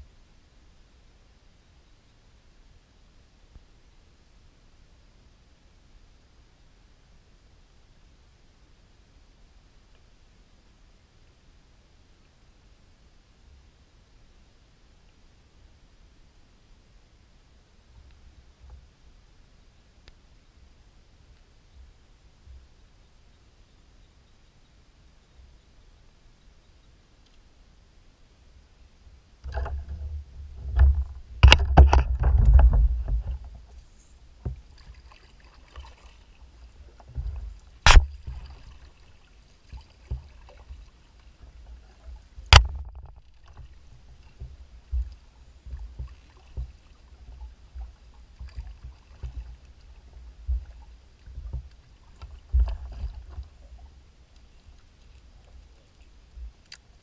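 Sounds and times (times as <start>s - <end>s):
kayak hull knocking: 29.4s - 33.6s, 42.4s - 46.8s
sharp clicks: 37.8s - 38.2s.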